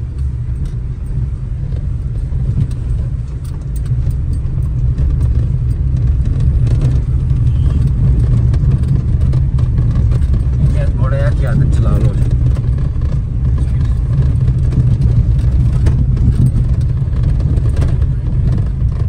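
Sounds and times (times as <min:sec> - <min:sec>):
engine and tyres rumbling on gravel: 0:00.0 - 0:19.0.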